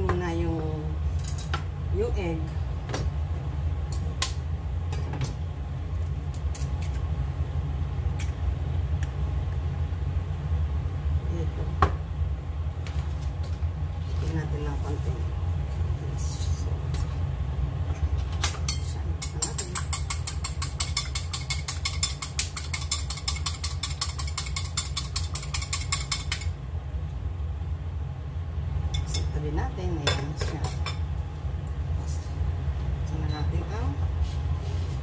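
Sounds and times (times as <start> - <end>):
steady low hum: 0.0 - 35.0
eggs beaten in a bowl: 19.2 - 26.5.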